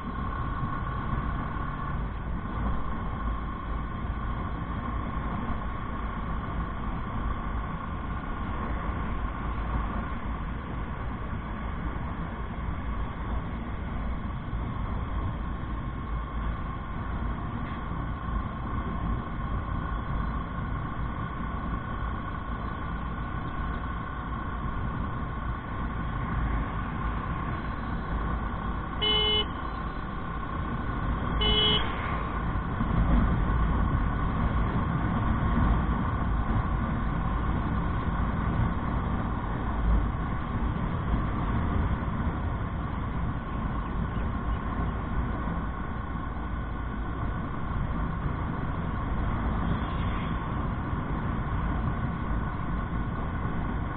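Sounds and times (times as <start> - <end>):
motorcycle engine and wind: 0.0 - 53.9
vehicle horn toots: 29.0 - 29.8, 31.4 - 32.0.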